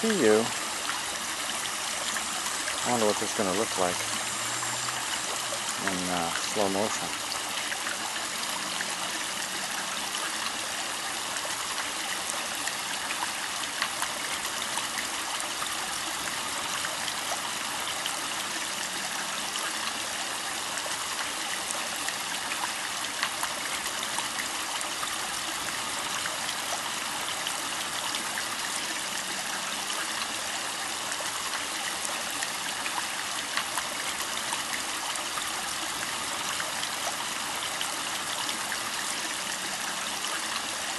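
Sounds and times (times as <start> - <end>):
pond water running and trickling: 0.0 - 40.9
water drips and splashes: 0.0 - 40.9.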